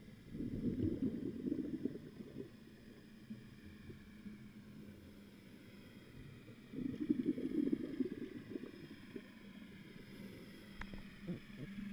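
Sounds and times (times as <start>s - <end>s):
muffled underwater hum: 0.0s - 11.9s
crackly rumbling: 0.2s - 4.6s, 6.5s - 9.7s.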